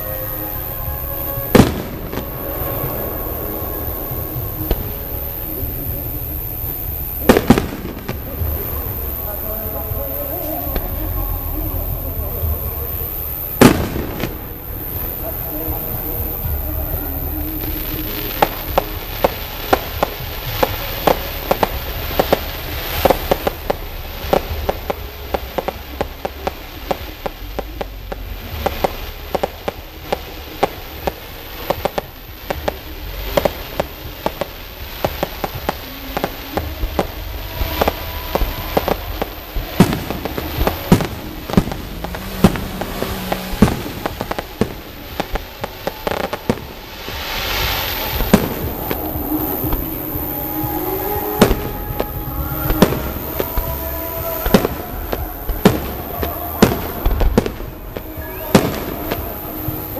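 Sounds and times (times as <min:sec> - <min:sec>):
firework shells bursting: 0:00.0 - 0:59.9
hissing rush: 0:00.0 - 0:59.9.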